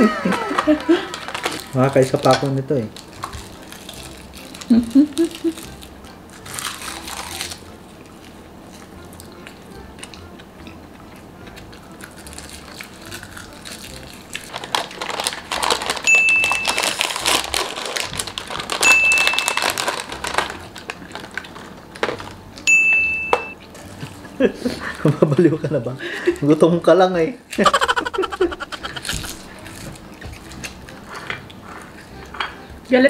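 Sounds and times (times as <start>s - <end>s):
plastic wrapper crinkling: 0.3s - 7.7s, 12.0s - 22.4s.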